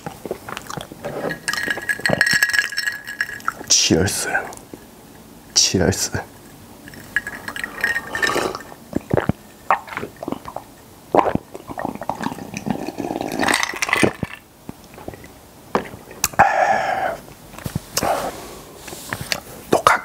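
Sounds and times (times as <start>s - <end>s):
wet chewing mouth sounds: 0.0s - 1.1s, 8.2s - 13.3s, 14.8s - 16.4s.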